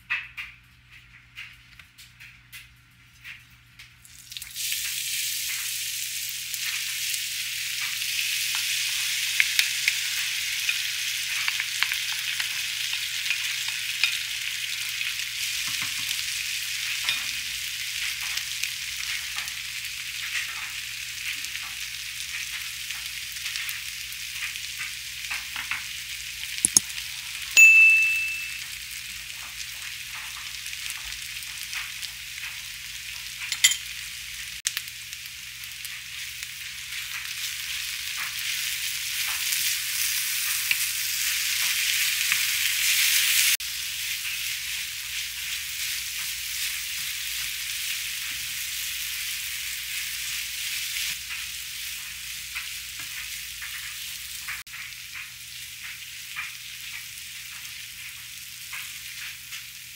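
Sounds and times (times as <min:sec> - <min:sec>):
potatoes sizzling in a frying pan: 0:03.4 - 0:27.6, 0:28.6 - 0:59.9
wooden spatula clicks and scrapes: 0:26.6 - 0:26.8
short high electronic beep: 0:27.6 - 0:28.6.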